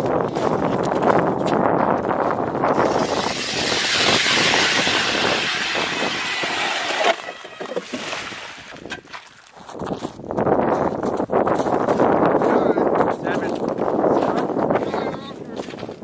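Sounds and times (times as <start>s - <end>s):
ice auger grinding through ice: 2.6s - 8.9s.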